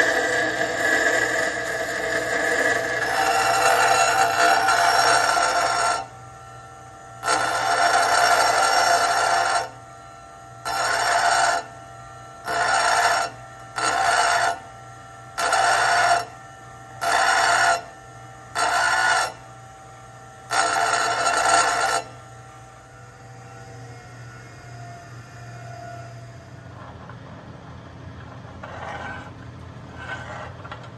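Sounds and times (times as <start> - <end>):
grinder wheel grinding a bolt: 0.0 - 6.1, 7.2 - 9.8, 10.6 - 11.8, 12.4 - 16.4, 17.0 - 19.5, 20.4 - 22.3
grinder motor humming: 0.0 - 27.2.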